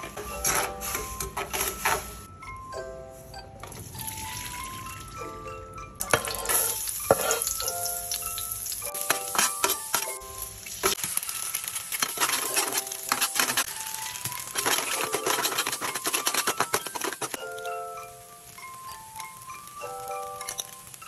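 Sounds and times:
metal spoon scraping a pan: 0:00.0 - 0:02.3, 0:06.0 - 0:07.8, 0:08.9 - 0:10.2, 0:10.8 - 0:17.4
egg sizzling: 0:03.6 - 0:21.0
garlic sizzling in hot oil: 0:06.1 - 0:21.0.

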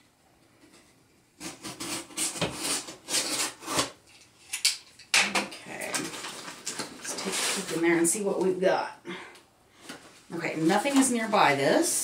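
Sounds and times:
knife slicing packing tape: 0:01.4 - 0:04.0
cardboard rustling: 0:05.8 - 0:08.2.

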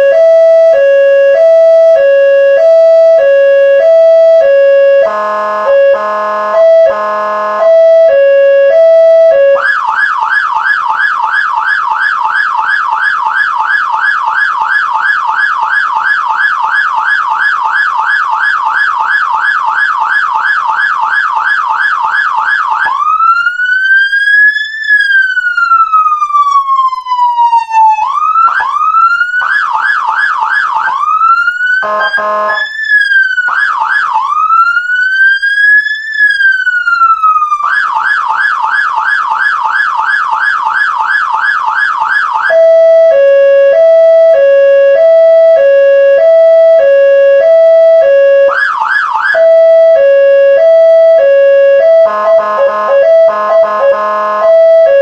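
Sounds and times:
siren horn blast: 0:00.0 - 0:09.8, 0:31.8 - 0:32.8, 0:42.4 - 0:55.0
electronic siren wail: 0:00.0 - 0:55.0
hi-lo two-tone siren: 0:00.0 - 0:55.0
siren yelp: 0:00.0 - 0:55.0.

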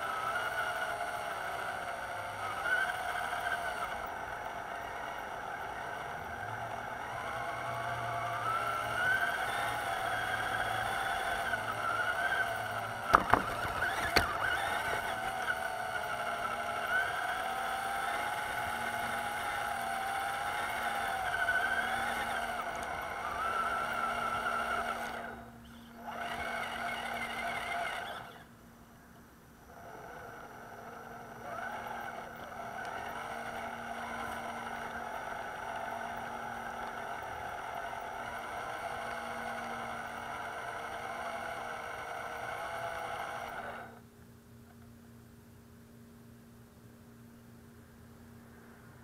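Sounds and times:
toy truck motor whining: 0:00.0 - 0:28.6, 0:29.6 - 0:44.0
sharp knocks: 0:13.1 - 0:14.3.

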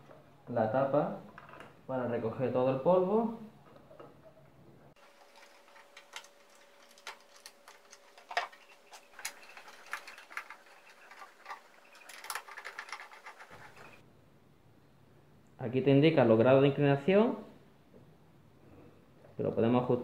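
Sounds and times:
plastic parts clicking and tapping: 0:05.0 - 0:14.0.

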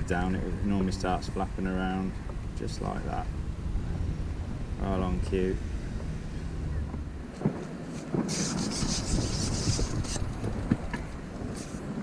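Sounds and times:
fishing pole rasping through hands: 0:08.3 - 0:10.3.

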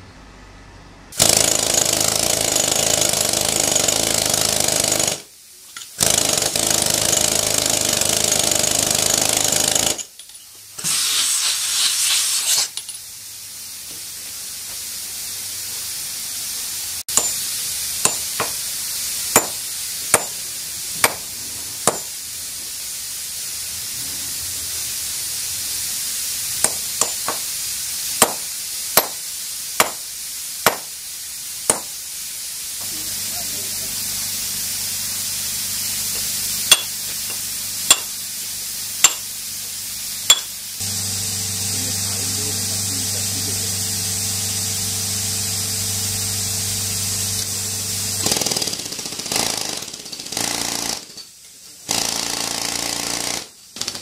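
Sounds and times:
pneumatic rock drill: 0:01.1 - 0:10.2, 0:10.8 - 0:12.9, 0:41.7 - 0:54.0
hammer striking steel wedges: 0:17.1 - 0:18.6, 0:19.3 - 0:20.4, 0:21.0 - 0:22.2, 0:26.6 - 0:27.5, 0:28.2 - 0:29.2, 0:29.8 - 0:30.9, 0:31.7 - 0:32.0, 0:36.1 - 0:38.2, 0:39.0 - 0:39.3, 0:40.3 - 0:40.6.

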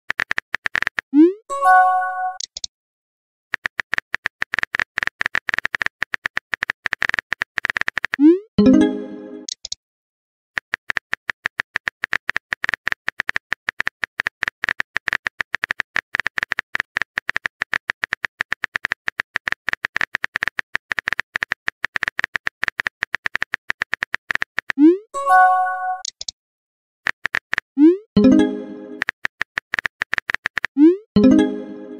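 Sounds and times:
phone keyboard typing clicks: 0:03.6 - 0:08.2, 0:10.6 - 0:24.8, 0:27.1 - 0:27.6, 0:28.2 - 0:31.5.

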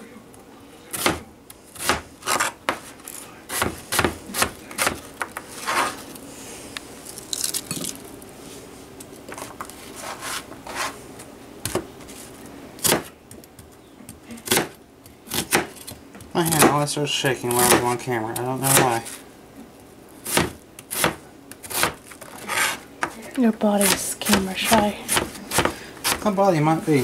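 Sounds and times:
knife chopping on cutting board: 0:00.9 - 0:01.2, 0:01.8 - 0:02.9, 0:03.5 - 0:05.9, 0:12.8 - 0:13.1, 0:14.4 - 0:16.8, 0:17.5 - 0:18.0, 0:18.6 - 0:19.0, 0:20.3 - 0:23.2, 0:23.8 - 0:26.3
knife scraping across board: 0:01.8 - 0:06.1, 0:09.4 - 0:11.0, 0:20.3 - 0:23.2.

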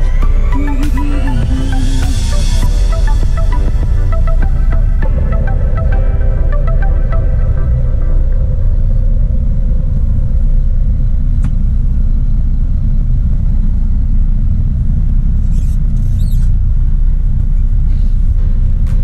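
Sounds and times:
truck engine rumbling: 0:00.0 - 0:19.0.

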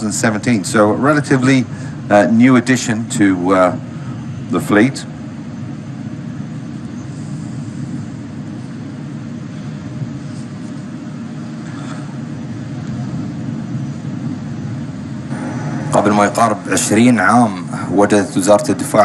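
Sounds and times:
jet engine rumble: 0:12.2 - 0:19.0.

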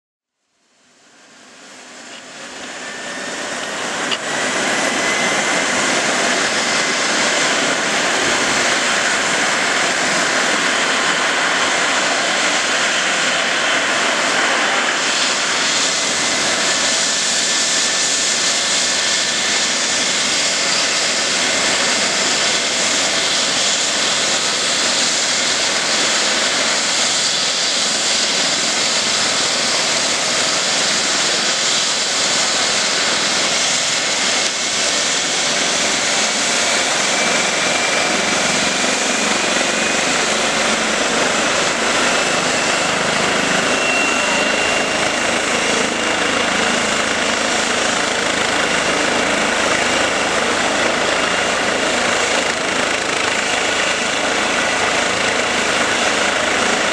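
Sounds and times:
helicopter turbine whine: 0:00.6 - 0:56.9
helicopter rotor turning: 0:01.6 - 0:56.9.

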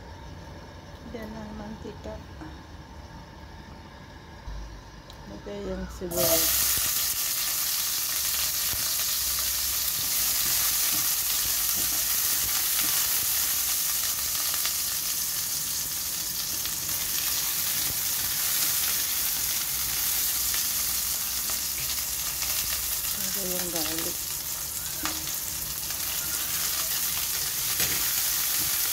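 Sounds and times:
onions sizzling in hot oil: 0:06.1 - 0:28.9.

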